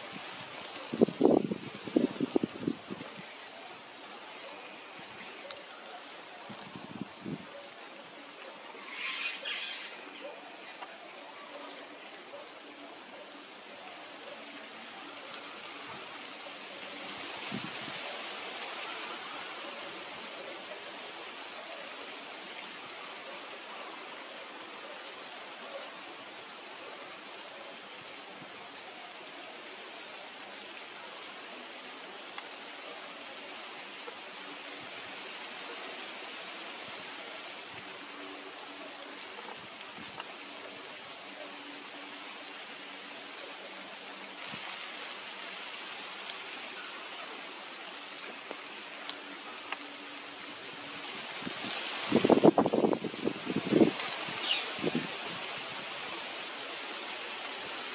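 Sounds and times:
faint ticks: 32.3 - 32.5, 48.0 - 49.9.

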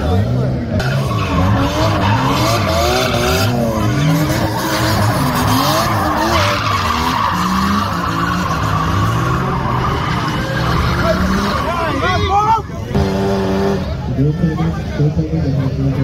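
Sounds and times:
car engine revving: 0.0 - 14.3
tyres squealing: 0.8 - 12.4.

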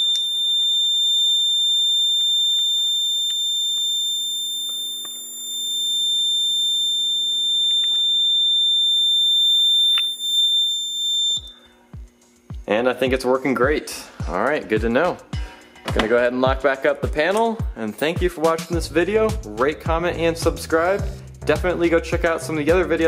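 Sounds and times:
alarm panel buzzer tone: 0.0 - 12.3.

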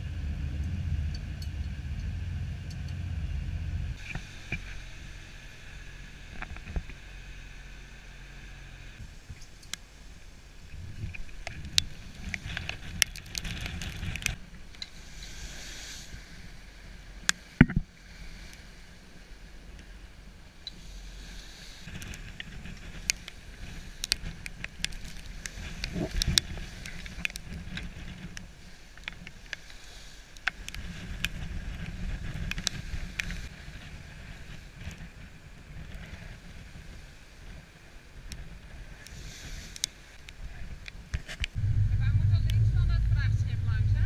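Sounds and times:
bow wave rushing along hull: 0.0 - 21.9, 41.5 - 44.0
wind on microphone: 9.0 - 16.9, 21.7 - 28.9, 30.6 - 44.0
sharp ticks and splashes: 10.7 - 15.4, 21.6 - 33.5.

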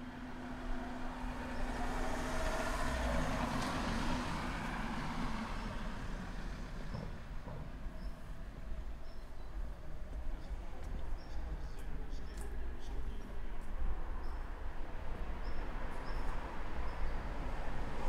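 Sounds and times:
vehicle passing by: 0.6 - 6.9.

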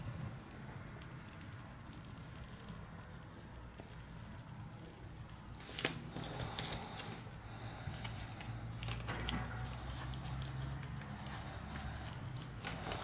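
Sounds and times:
low steady hum: 0.0 - 13.0
small clicks and scrapes: 7.9 - 13.0.

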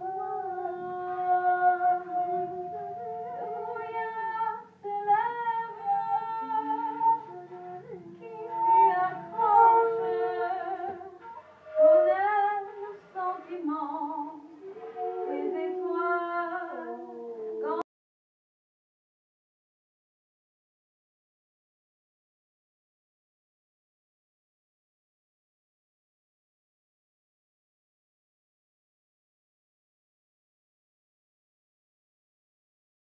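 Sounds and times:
women singing unaccompanied: 0.0 - 17.8.

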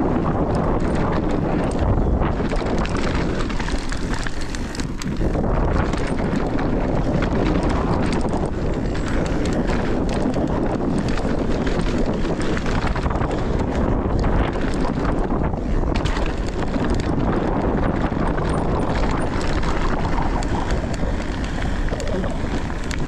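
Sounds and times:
bike rattling and clicking: 0.0 - 23.0
bike tyres rolling on dirt: 0.0 - 23.0
wind noise on microphone: 0.0 - 23.0.

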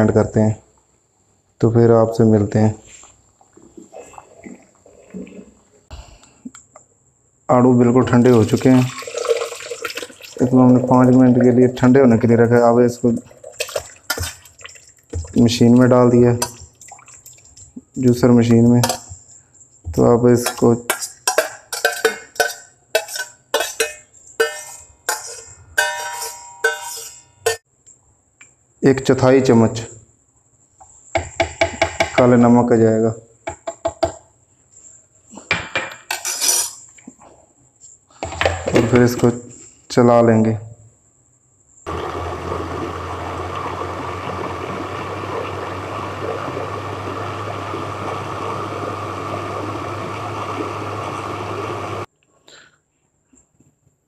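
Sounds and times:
metal spoon scraping saucepan: 20.4 - 27.6, 36.1 - 36.8
electric blender running: 41.9 - 52.1.

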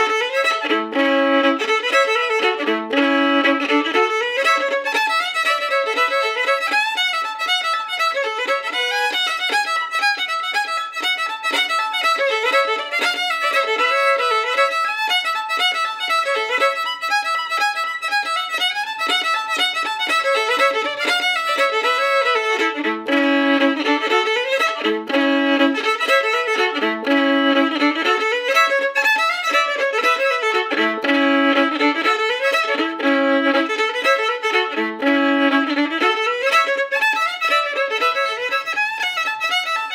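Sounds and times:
folk fiddle tune: 0.0 - 39.9.

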